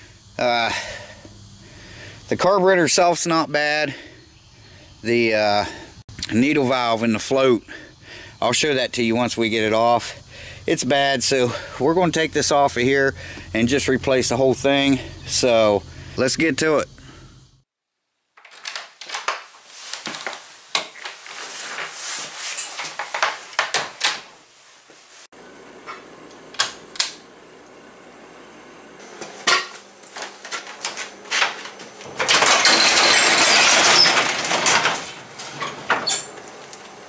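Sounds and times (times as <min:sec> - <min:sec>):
faint steady hum: 0:00.0 - 0:02.4
metal tools clattering: 0:31.3 - 0:36.4.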